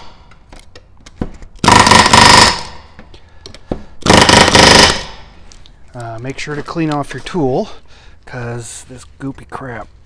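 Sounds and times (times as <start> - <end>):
pneumatic rivet gun hammering: 1.6 - 2.8, 3.7 - 5.2.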